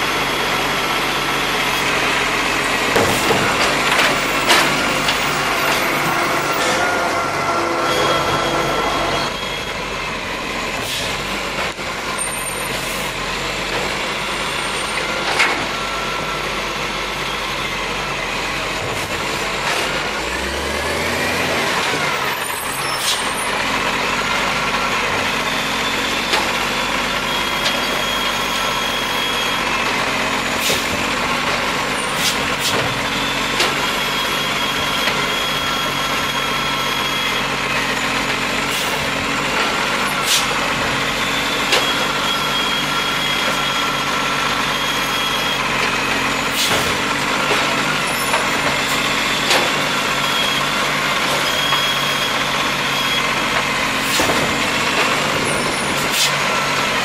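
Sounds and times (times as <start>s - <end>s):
garbage truck diesel engine: 0.0s - 57.0s
hydraulic arm lifting bin: 0.2s - 57.0s
clunks: 2.9s - 7.2s, 14.9s - 15.8s, 30.6s - 37.1s, 41.6s - 44.0s, 45.6s - 50.6s, 51.2s - 57.0s
air brake hisses: 32.0s - 32.8s, 40.2s - 40.5s, 46.5s - 47.0s.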